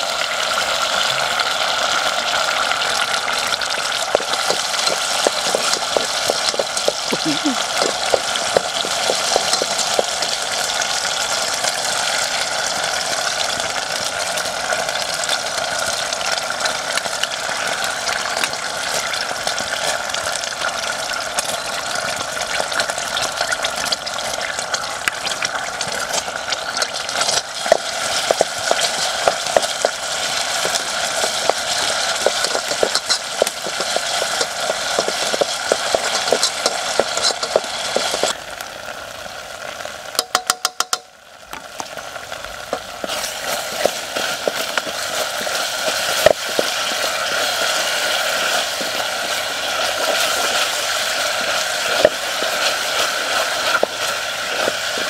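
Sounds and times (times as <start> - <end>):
paste sizzling in oil: 0.0 - 41.0, 41.7 - 55.0
pops and clicks: 3.6 - 10.5, 26.0 - 38.7, 40.1 - 42.0, 42.6 - 55.0.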